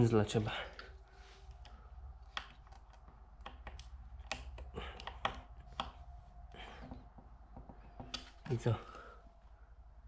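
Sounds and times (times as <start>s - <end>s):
fingers clicking plastic tab: 2.3s - 6.0s.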